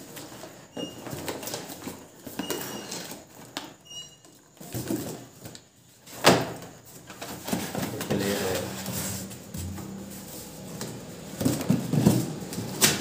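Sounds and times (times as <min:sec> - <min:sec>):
short squeaks: 0:03.8 - 0:04.4
cardboard scraping and rustling: 0:04.6 - 0:13.0.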